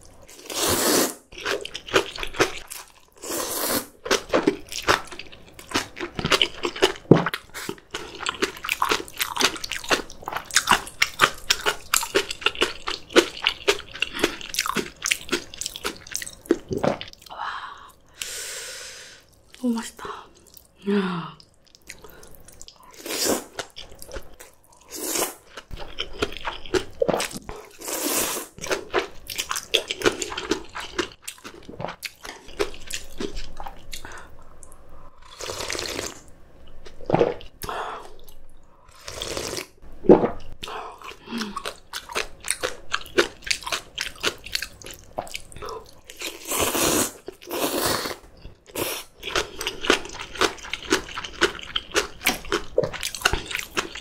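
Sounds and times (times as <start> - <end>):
slurping noodles: 0.3 - 4.0, 22.9 - 23.6, 27.1 - 28.6, 35.2 - 36.2, 38.9 - 40.4, 46.2 - 49.4
crunchy chewing: 41.4 - 54.0.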